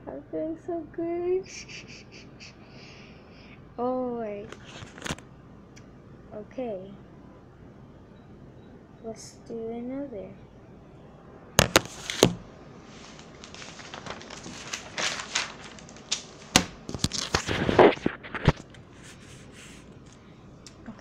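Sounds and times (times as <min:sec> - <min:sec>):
paper rustling: 0:04.5 - 0:05.2, 0:11.6 - 0:20.3
camera handling knocks: 0:11.6 - 0:12.4.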